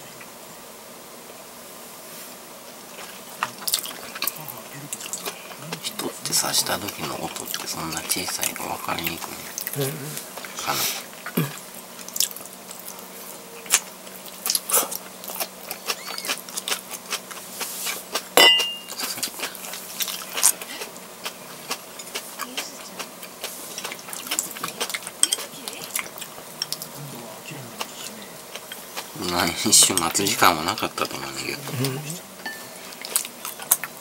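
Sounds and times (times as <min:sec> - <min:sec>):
faint steady hum: 0:00.0 - 0:34.0
person chewing: 0:02.9 - 0:27.1, 0:27.7 - 0:31.2, 0:32.6 - 0:34.0
ceramic clink with brief ring: 0:18.4 - 0:18.9, 0:32.5 - 0:32.7.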